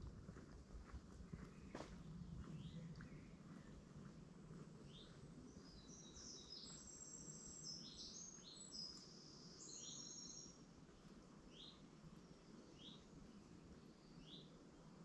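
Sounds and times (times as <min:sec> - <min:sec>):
low outdoor background hum: 0:00.0 - 0:15.0
bird song whistles and chirps: 0:05.6 - 0:10.6.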